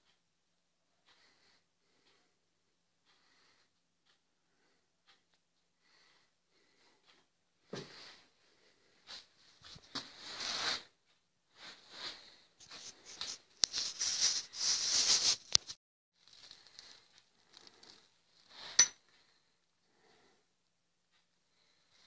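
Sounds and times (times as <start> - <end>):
rustling and scraping handling noise: 9.0 - 10.9, 11.6 - 18.9.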